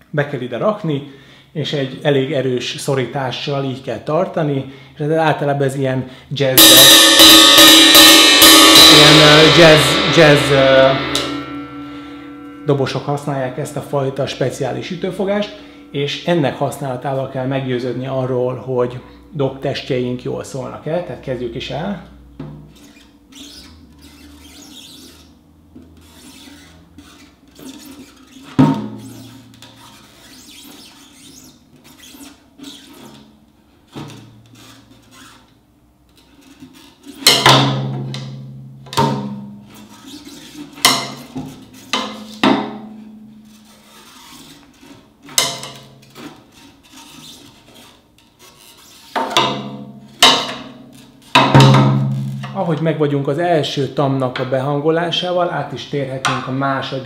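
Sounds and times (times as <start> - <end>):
tom drum hits: 6.6 - 13.3, 51.4 - 52.5.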